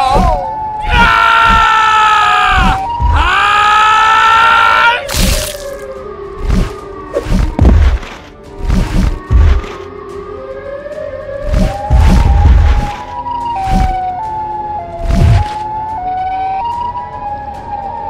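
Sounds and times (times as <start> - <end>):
distorted siren wails: 0.0 - 5.1
heavy thuds: 7.3 - 9.7.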